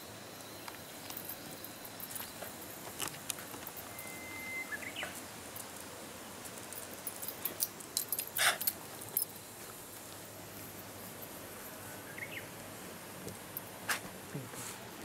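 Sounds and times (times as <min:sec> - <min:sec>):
thin high tone: 0:00.0 - 0:05.7.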